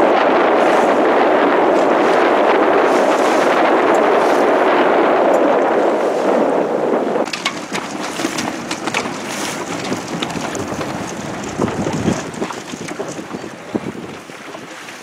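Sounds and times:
water splashing against boat hull: 0.0s - 6.3s, 7.2s - 15.0s
wind buffeting microphone: 0.0s - 15.0s.

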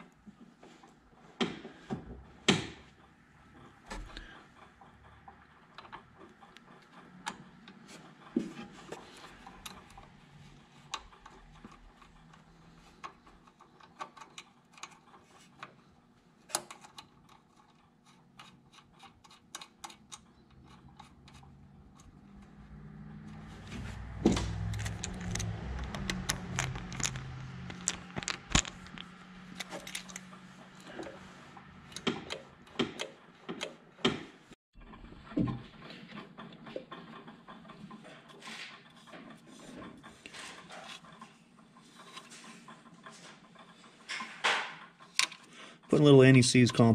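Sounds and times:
small metal clicks and rattles: 9.0s - 22.6s, 24.5s - 31.1s
low rumble: 22.4s - 29.6s.

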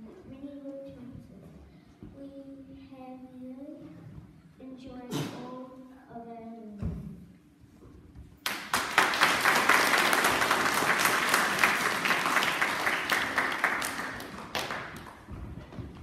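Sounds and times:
children applauding: 8.4s - 15.3s.

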